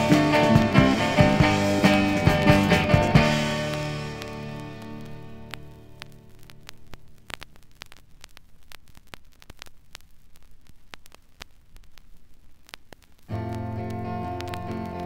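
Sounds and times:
song playing: 0.0 - 5.5
low hiss: 0.0 - 15.0
vinyl crackles and pops: 0.0 - 15.0.

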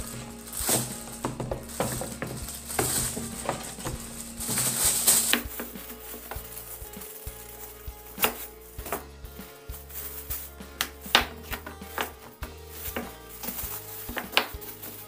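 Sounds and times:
plastic bags rustling and crinkling: 0.0 - 15.0.

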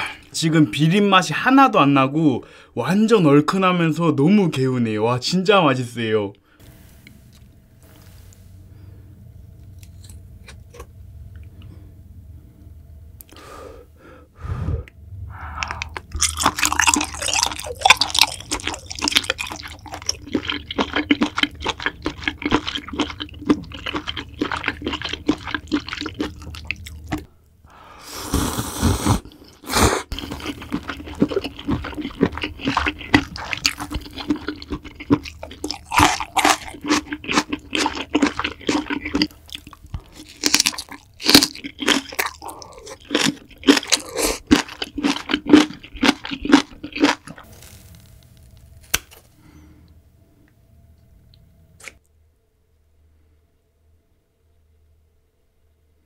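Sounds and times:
slurping: 15.4 - 27.3, 28.0 - 48.0
wet chewing and smacking: 15.6 - 27.3, 29.2 - 47.7.

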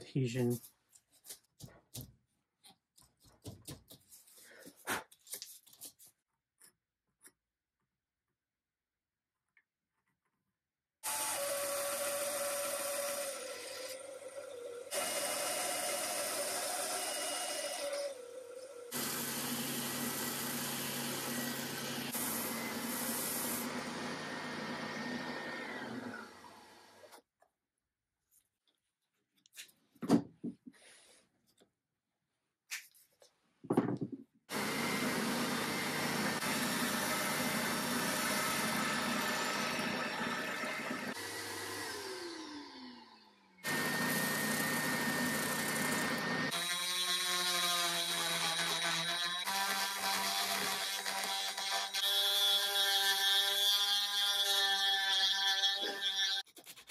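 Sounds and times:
bandsaw cutting wood: 11.0 - 27.1, 34.5 - 56.9
belt sander running: 18.9 - 27.0, 34.5 - 46.7.

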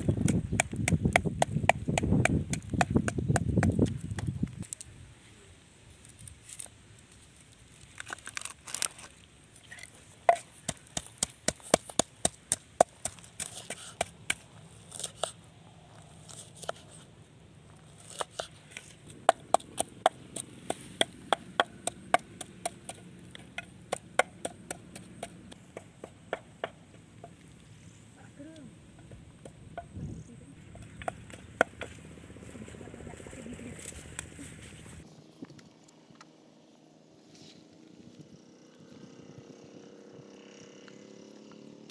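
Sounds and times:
pestle pounding in mortar: 0.1 - 4.3, 19.2 - 27.4, 30.6 - 32.0.

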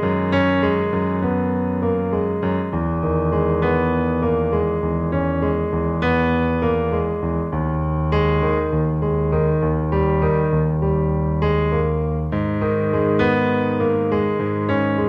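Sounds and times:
keyboard chords: 0.0 - 15.0.

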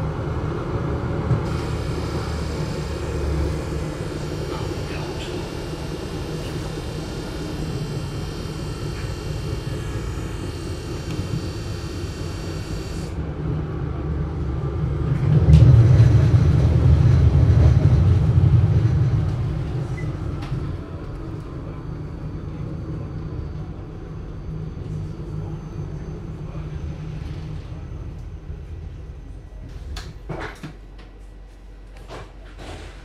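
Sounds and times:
muffled tram rumble: 0.0 - 12.2, 13.2 - 31.4
high multi-tone whine: 1.4 - 13.2.

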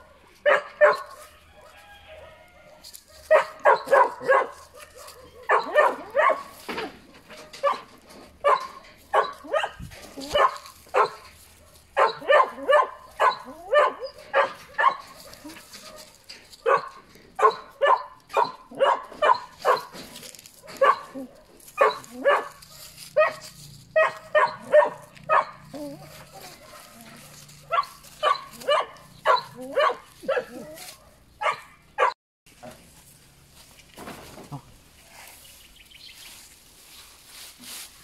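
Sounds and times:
puppies yipping and whining: 0.8 - 1.3, 3.2 - 6.8, 12.0 - 16.0, 16.7 - 32.2.

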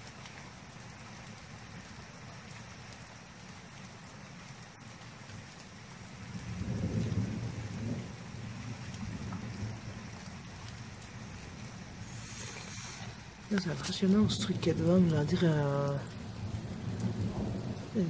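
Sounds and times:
rain hissing: 0.0 - 18.0
thunder rumbling: 6.1 - 18.0.

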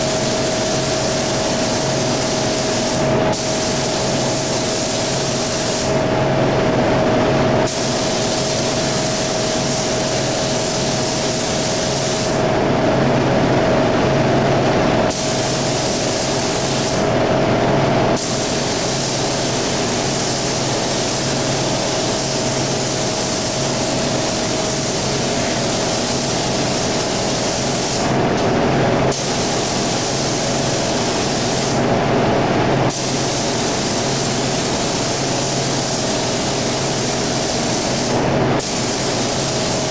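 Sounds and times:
paint spray gun hissing: 0.0 - 6.0, 7.7 - 12.4, 15.1 - 17.1, 18.2 - 28.5, 29.1 - 31.9, 32.9 - 39.9
steady low hum: 21.0 - 32.9.

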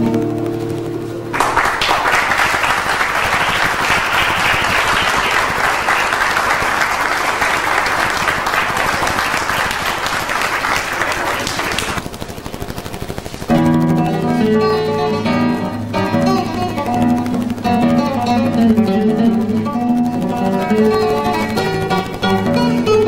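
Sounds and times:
audience applauding: 1.3 - 12.0.

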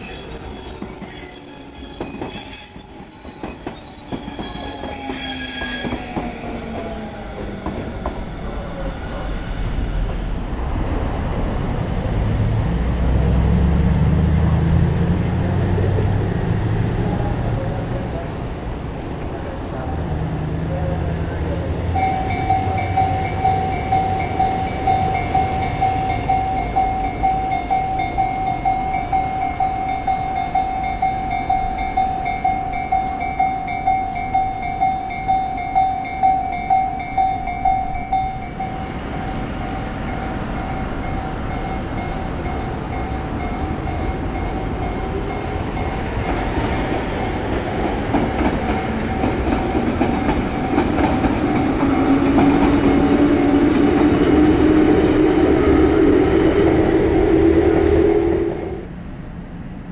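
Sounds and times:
train wheels rumbling: 0.0 - 59.9
level crossing warning bell ringing: 21.9 - 52.3.

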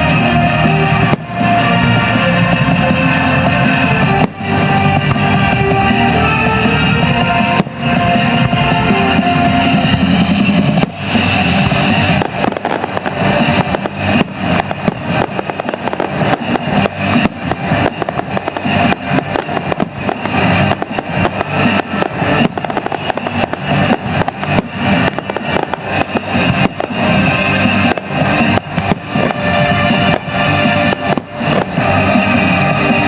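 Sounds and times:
loud music: 0.0 - 33.0
firework shells bursting: 10.0 - 33.0.

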